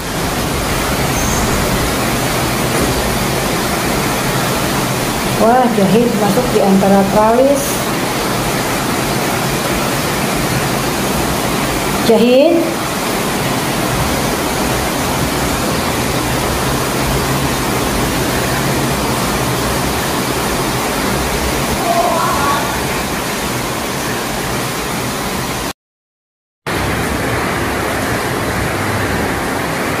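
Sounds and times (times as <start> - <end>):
heavy rain falling: 0.0 - 25.7, 26.7 - 30.0.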